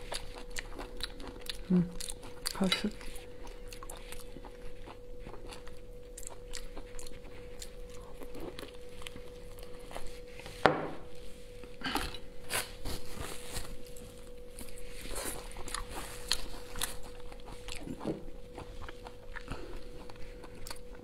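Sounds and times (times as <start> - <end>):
person chewing: 0.0 - 10.5, 11.5 - 21.0
faint steady hum: 0.0 - 21.0
paper napkin rustling: 12.5 - 16.7.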